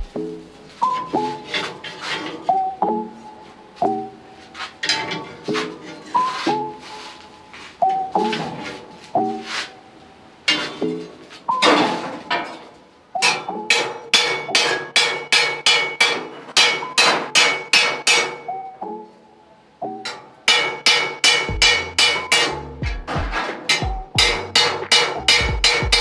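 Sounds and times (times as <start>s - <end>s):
hammer striking steel bar: 13.2s - 18.7s, 20.1s - 26.0s.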